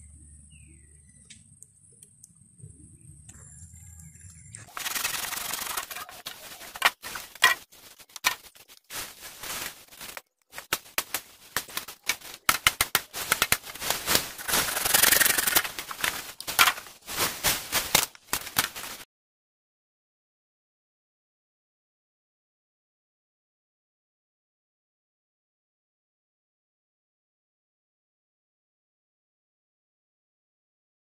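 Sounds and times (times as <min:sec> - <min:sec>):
dry bamboo and leaves crackling: 0:04.0 - 0:19.0.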